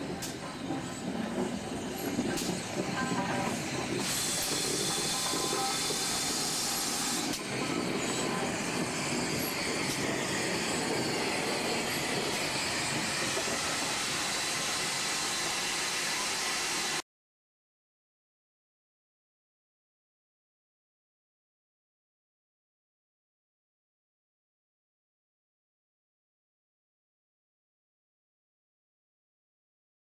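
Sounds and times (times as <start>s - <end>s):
steam hissing: 0.0s - 17.0s.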